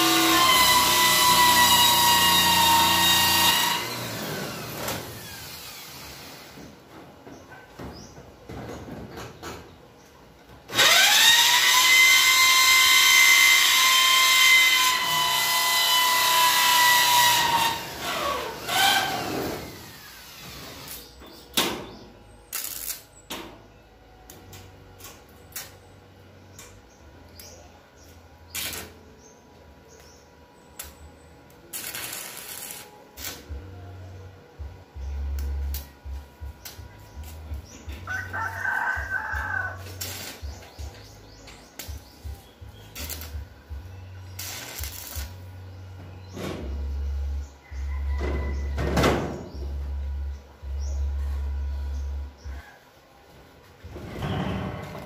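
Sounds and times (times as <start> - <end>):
power drill drilling into steel: 10.7 - 21.0.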